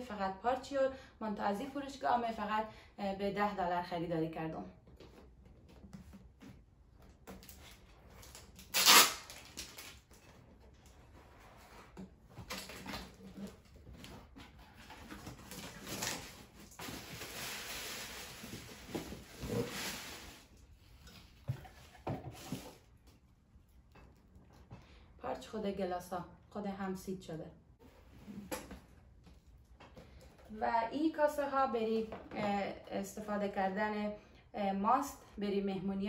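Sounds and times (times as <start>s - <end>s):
cardboard rustling and scraping: 9.9s - 20.5s.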